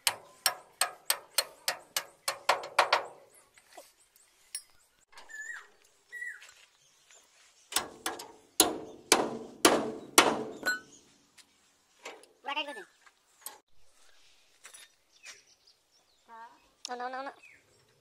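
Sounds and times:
hammer striking metal: 0:07.8 - 0:10.9.

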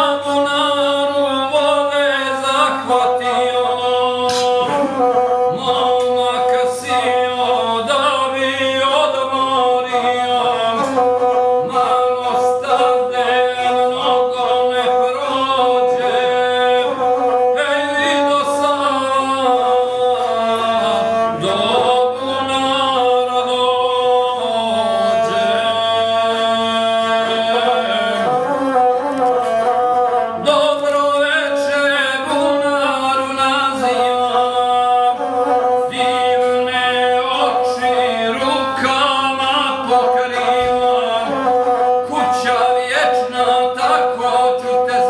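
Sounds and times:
person singing: 0:00.0 - 0:45.0
bowed single-string fiddle: 0:24.8 - 0:45.0.

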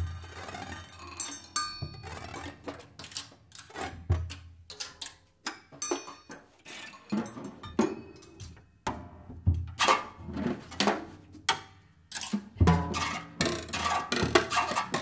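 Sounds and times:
drum kit played with sticks: 0:12.3 - 0:15.0.

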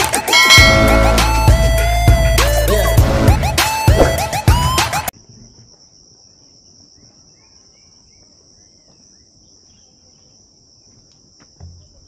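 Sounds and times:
faint bird chirps: 0:06.4 - 0:12.0.

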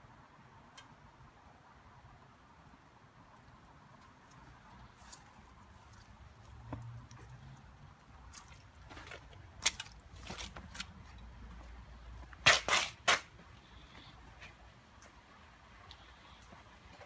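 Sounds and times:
footsteps on wet concrete and gravel: 0:04.2 - 0:17.0.

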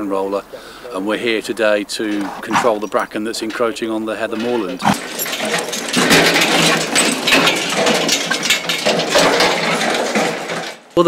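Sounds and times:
roller rattling and clanking: 0:00.0 - 0:11.0
metallic clicks and clinks: 0:04.4 - 0:11.0.

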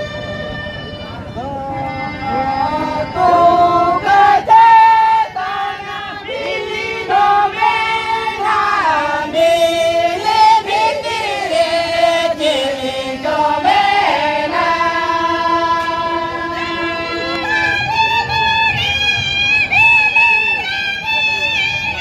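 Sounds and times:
person singing: 0:01.4 - 0:17.9.

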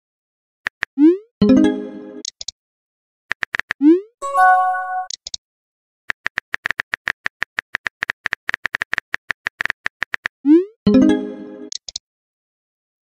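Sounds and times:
chime: 0:04.2 - 0:05.1.

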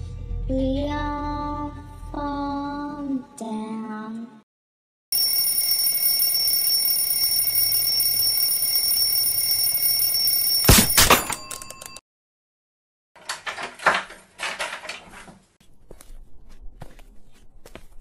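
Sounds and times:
alarm clock ringing: 0:05.1 - 0:12.0
clattering knocks: 0:13.2 - 0:15.4.

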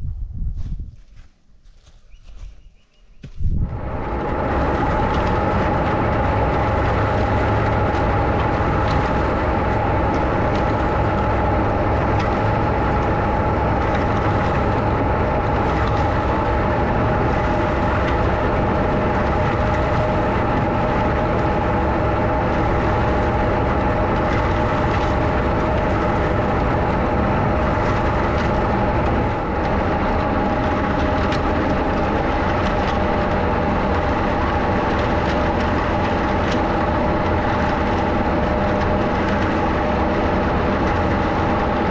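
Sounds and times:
steady mechanical whine: 0:00.0 - 0:41.9
tractor mechanical drone: 0:01.2 - 0:41.9.

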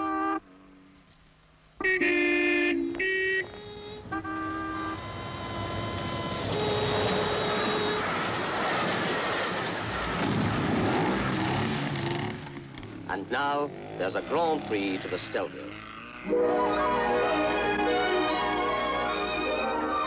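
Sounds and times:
train horn toots: 0:01.8 - 0:08.3
train passing rumble: 0:03.9 - 0:13.9.

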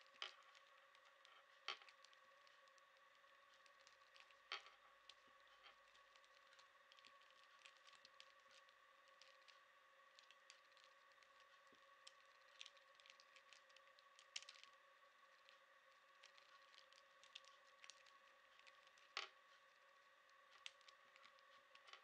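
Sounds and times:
faint steady whine: 0:00.0 - 0:22.0.

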